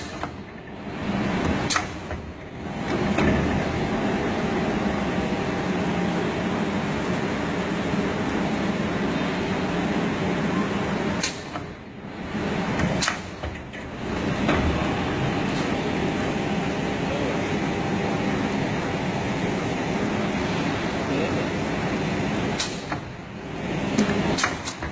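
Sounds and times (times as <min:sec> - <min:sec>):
machine mechanical hum: 0:00.0 - 0:24.9
sharp machine click: 0:11.2 - 0:11.6.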